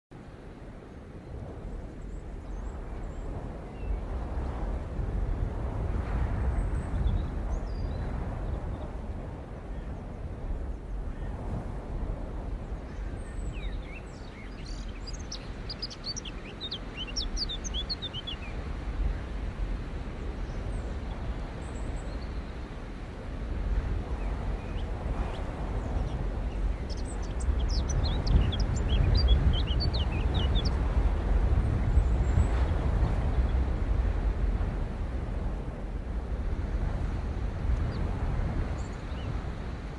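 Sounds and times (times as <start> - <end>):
bird chirping: 13.0 - 18.6, 24.2 - 30.9.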